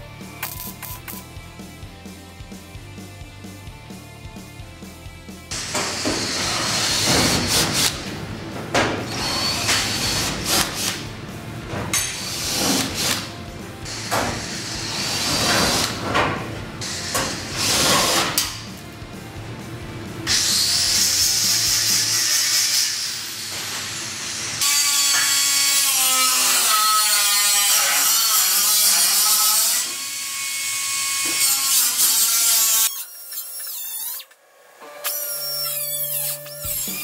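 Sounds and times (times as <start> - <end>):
power grinder on steel: 5.5 - 8.0, 9.1 - 11.1, 20.3 - 34.3.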